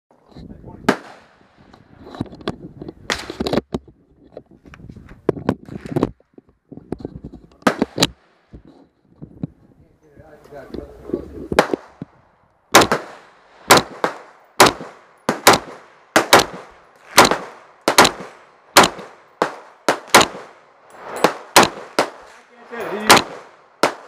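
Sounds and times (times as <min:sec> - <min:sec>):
pistol gunshots echoing: 0:00.9 - 0:01.4, 0:12.7 - 0:24.0.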